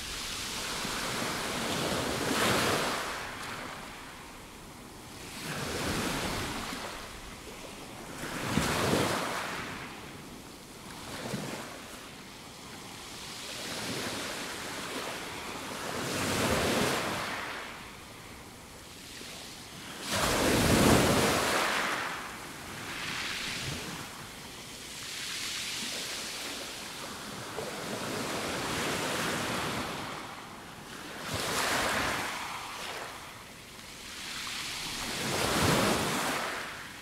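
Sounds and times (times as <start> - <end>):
small waves breaking on pebble beach: 0.0 - 4.2, 19.9 - 30.2, 34.0 - 37.0.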